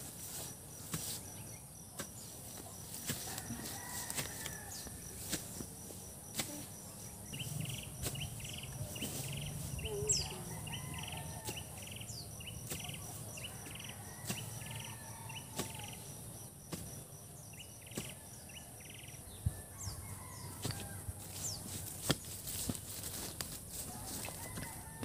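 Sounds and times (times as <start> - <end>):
insects chirping: 0.0 - 25.0
birds calling: 6.4 - 16.1.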